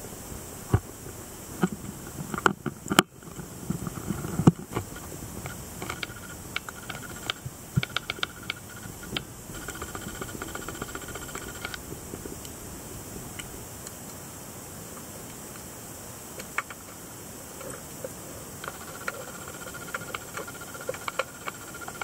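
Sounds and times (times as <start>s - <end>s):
sharp underwater clicks and crackles: 1.6s - 12.6s, 16.4s - 17.0s, 17.6s - 22.0s.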